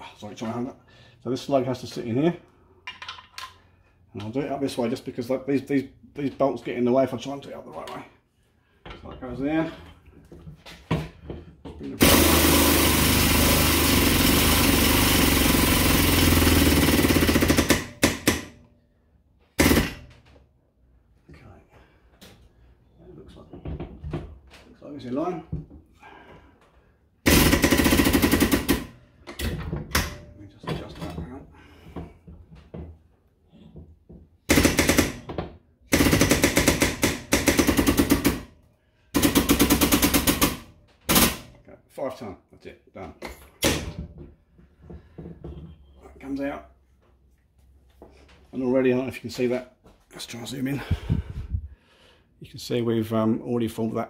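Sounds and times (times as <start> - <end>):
hydraulic pump chattering: 12.0 - 18.4.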